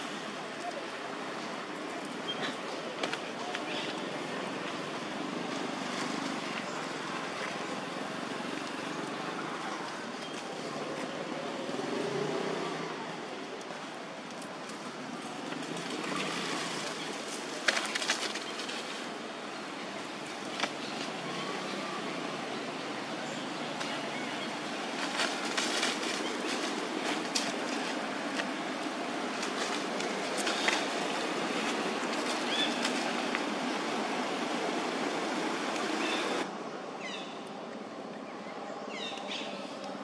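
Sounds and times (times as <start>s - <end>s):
outdoor background noise: 0.0s - 40.0s.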